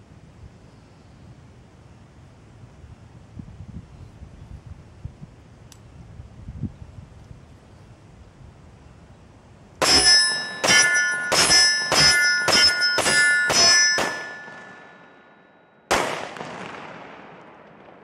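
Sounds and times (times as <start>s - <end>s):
pistol shots: 9.8s - 15.0s, 15.9s - 18.0s
steel targets ringing: 9.8s - 15.9s.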